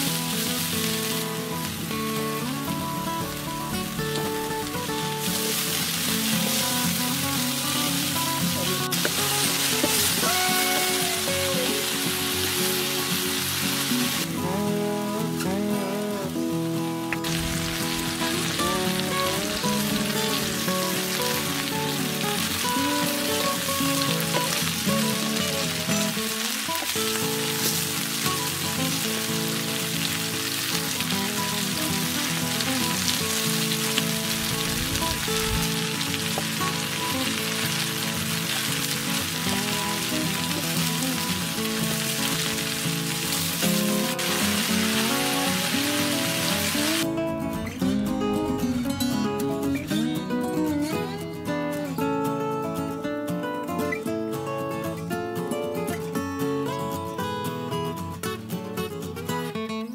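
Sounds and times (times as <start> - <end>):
background music: 0.0 - 33.7
peppers sizzling in a frying pan: 0.0 - 47.1.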